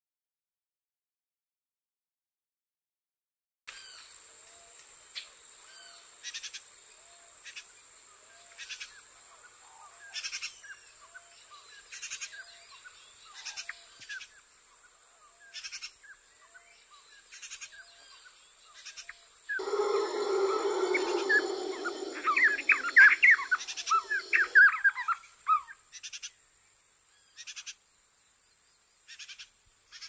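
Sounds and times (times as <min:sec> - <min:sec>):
soft low call: 0:19.6 - 0:24.7
buzzy insect pulses: 0:19.6 - 0:24.8
bird chirps: 0:19.6 - 0:25.0
high insect drone: 0:19.6 - 0:25.2.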